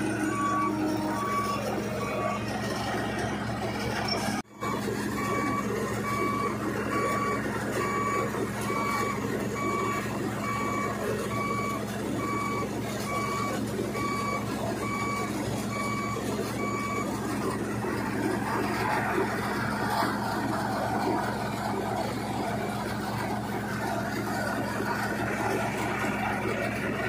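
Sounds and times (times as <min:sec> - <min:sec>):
electronic warning beeps: 0:00.0 - 0:20.3
combine harvester engine running: 0:00.0 - 0:27.0.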